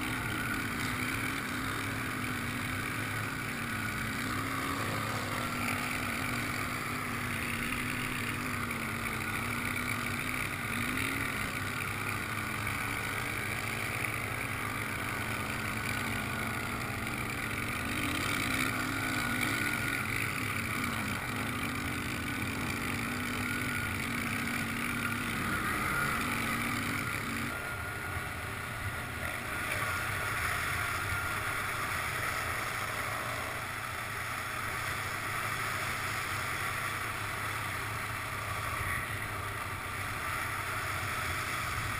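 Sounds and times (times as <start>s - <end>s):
atv engine revving: 0.0s - 41.9s.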